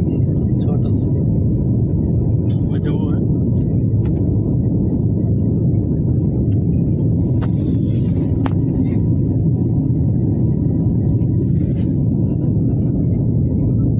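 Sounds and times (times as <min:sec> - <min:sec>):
jet airliner cabin rumble: 0:00.0 - 0:13.9.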